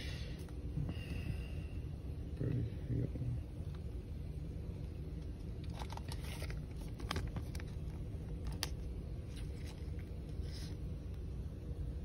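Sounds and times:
low background hum: 0:00.0 - 0:12.0
plastic sleeve crinkling: 0:05.5 - 0:10.6.

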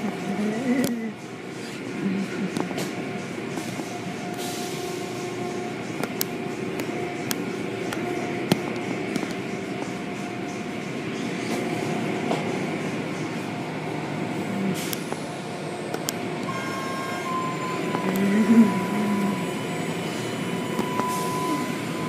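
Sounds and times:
steady mechanical hum: 0:00.0 - 0:22.0.

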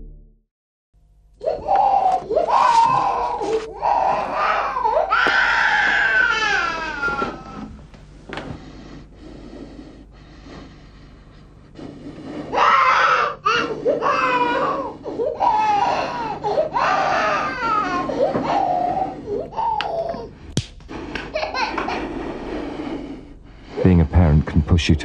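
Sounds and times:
baby crying: 0:01.4 - 0:07.7, 0:12.5 - 0:20.4.

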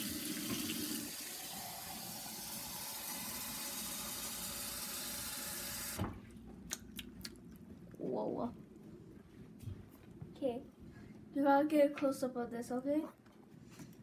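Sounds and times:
faucet running water into mug: 0:00.0 - 0:06.0.

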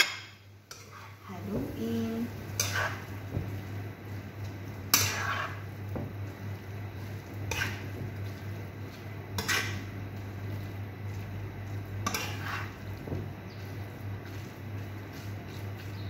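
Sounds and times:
metal tongs scraping a wok: 0:00.7 - 0:01.9, 0:02.5 - 0:03.2, 0:04.9 - 0:05.7, 0:07.4 - 0:07.9, 0:09.4 - 0:09.9, 0:12.0 - 0:12.8.

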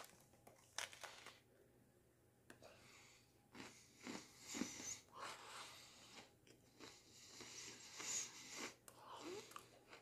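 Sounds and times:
cookie crunching: 0:00.0 - 0:01.5.

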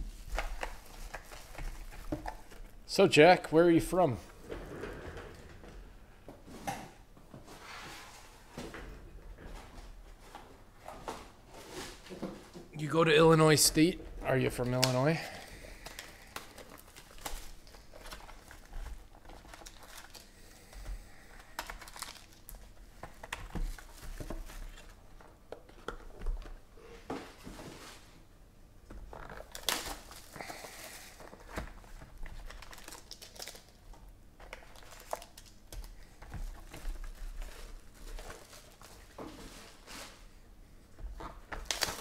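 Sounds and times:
plastic wrap crinkling and tearing: 0:00.0 - 0:03.0, 0:14.6 - 0:25.0, 0:29.1 - 0:40.2, 0:41.2 - 0:42.0.

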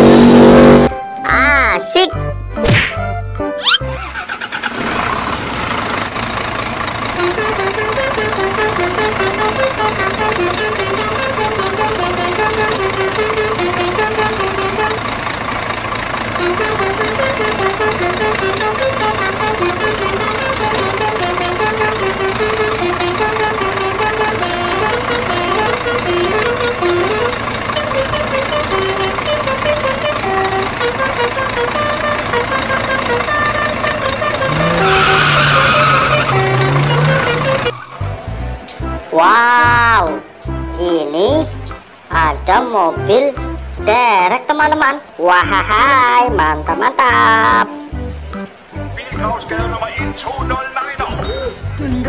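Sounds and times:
truck engine running: 0:00.0 - 0:01.0, 0:02.4 - 0:52.0
bouncy melody over fast beat: 0:07.2 - 0:15.2, 0:16.4 - 0:39.1.

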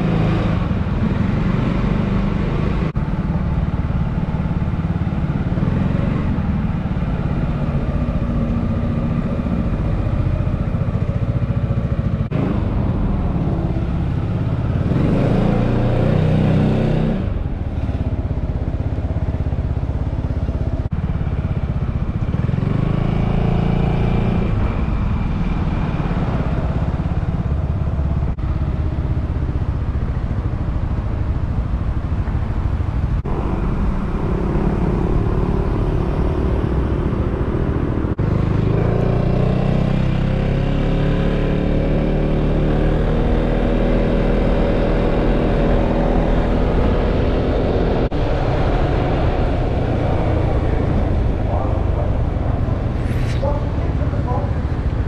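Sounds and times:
low rumble: 0:33.0 - 0:38.2, 0:45.8 - 0:55.0.

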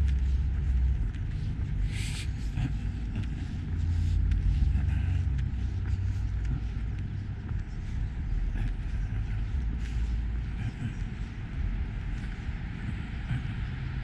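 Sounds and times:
distant traffic rumble: 0:00.0 - 0:14.0
footsteps on sidewalk: 0:00.0 - 0:14.0.

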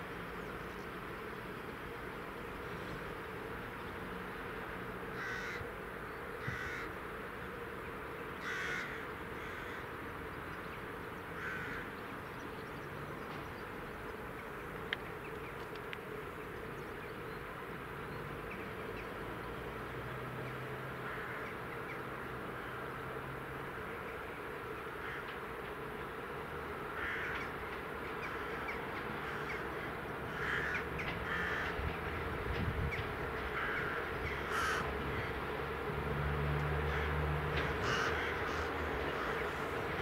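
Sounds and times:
steady background hum: 0:00.0 - 0:40.0
crows cawing: 0:05.1 - 0:05.7, 0:06.4 - 0:07.0, 0:08.4 - 0:09.9, 0:11.4 - 0:11.9, 0:21.0 - 0:21.6, 0:25.0 - 0:25.4, 0:27.0 - 0:27.6, 0:28.2 - 0:31.9, 0:33.4 - 0:35.4, 0:36.8 - 0:39.9.

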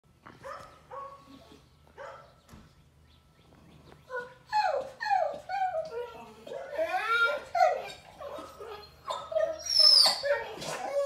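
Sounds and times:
dog whining: 0:04.1 - 0:11.0.

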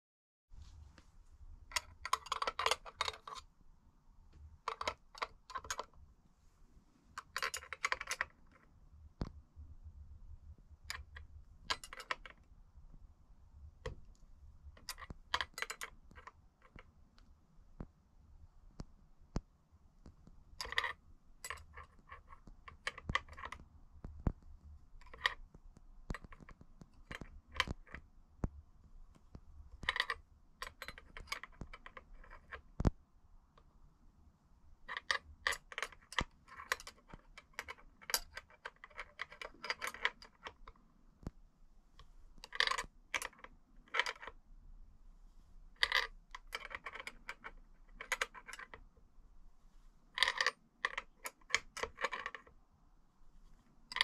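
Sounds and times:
metal parts clinking and rattling: 0:01.7 - 0:03.4, 0:04.7 - 0:05.9, 0:07.2 - 0:08.5, 0:10.9 - 0:12.4, 0:14.8 - 0:16.8, 0:29.8 - 0:32.6, 0:34.9 - 0:40.7, 0:45.8 - 0:48.8, 0:50.2 - 0:52.5.

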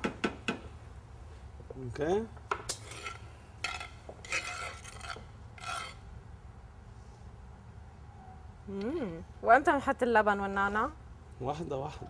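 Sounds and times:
spoon scraping through curry: 0:02.7 - 0:06.0.

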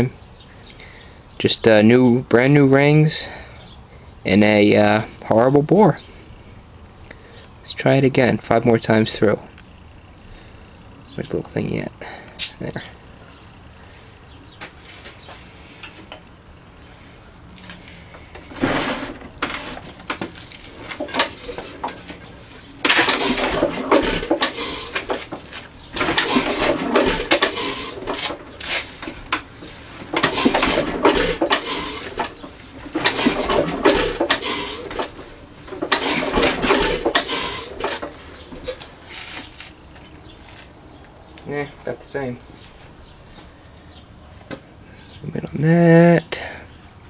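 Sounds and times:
engine turned over by hand: 0:18.1 - 0:39.7.

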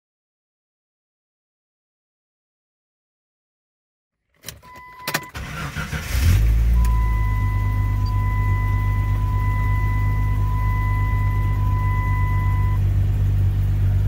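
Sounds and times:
car engine starting and idling: 0:04.3 - 0:14.0.

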